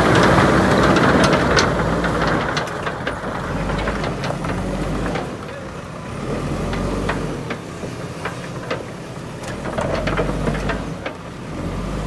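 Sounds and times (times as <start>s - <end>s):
diesel engine running: 0.0s - 12.0s
sharp metallic clacks and knocks: 6.6s - 11.3s.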